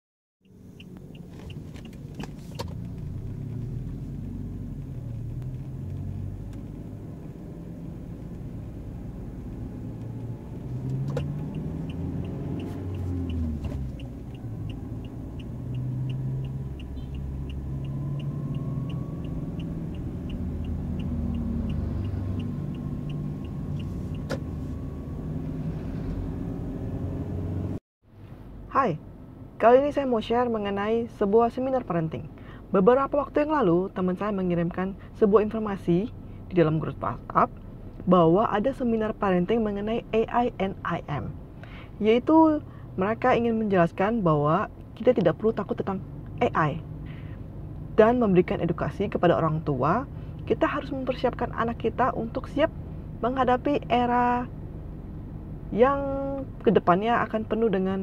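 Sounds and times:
light regular ticking: 0:00.4 - 0:03.7
car engine and road rumble: 0:00.4 - 0:58.0.

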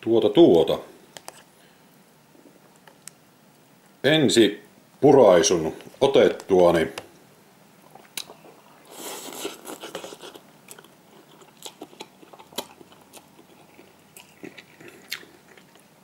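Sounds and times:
soft mouth clicks: 0:07.9 - 0:08.5
person chewing noodles: 0:07.9 - 0:15.9.

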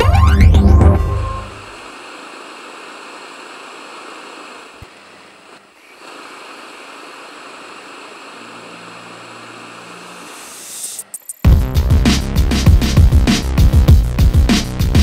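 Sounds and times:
loud synth music: 0:00.0 - 0:01.6, 0:11.5 - 0:15.0
static hiss: 0:01.0 - 0:15.0.

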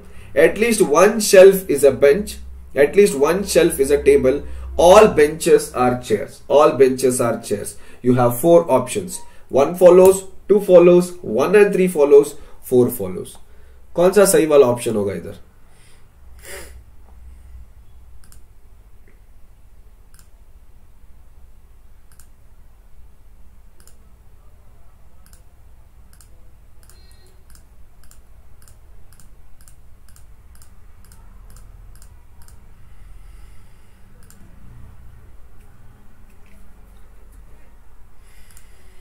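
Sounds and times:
low steady hum: 0:00.0 - 0:39.0
sharp clicks: 0:18.2 - 0:18.5, 0:20.1 - 0:20.4, 0:22.1 - 0:22.4, 0:23.8 - 0:24.0, 0:25.2 - 0:25.5, 0:26.1 - 0:32.7, 0:34.2 - 0:34.5.

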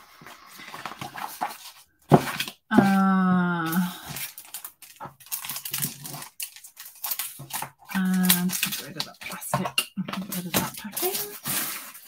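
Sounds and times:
plastic packaging rustling: 0:00.0 - 0:12.0
woman's wordless vocal sound: 0:02.7 - 0:04.2.

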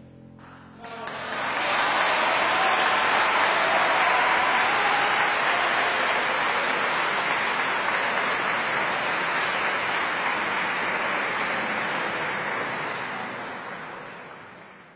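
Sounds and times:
audience applauding: 0:00.7 - 0:14.9.

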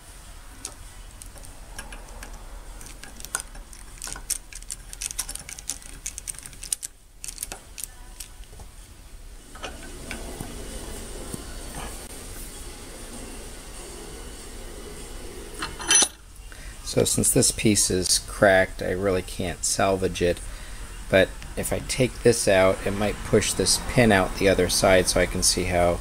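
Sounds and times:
metal tools clinking on wrench: 0:15.6 - 0:16.2.

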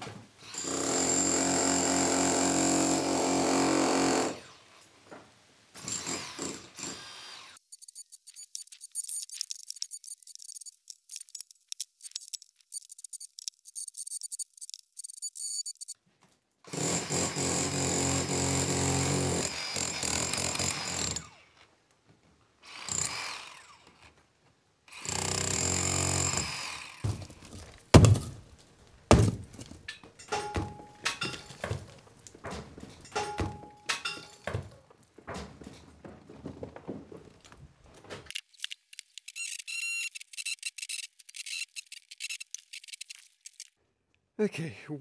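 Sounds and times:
hammer drill boring into wall: 0:00.4 - 0:04.6, 0:05.8 - 0:07.6, 0:16.7 - 0:21.6, 0:22.6 - 0:24.1, 0:24.9 - 0:28.4
sharp knocks: 0:27.0 - 0:28.5, 0:29.1 - 0:37.1
clattering: 0:27.0 - 0:38.3.

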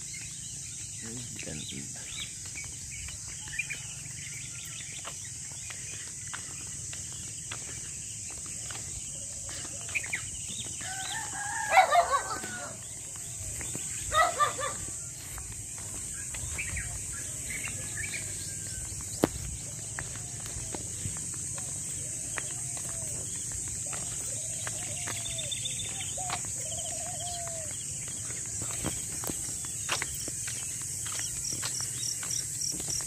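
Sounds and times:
small birds chirping: 0:00.0 - 0:33.0
rooster crowing: 0:10.8 - 0:12.9.

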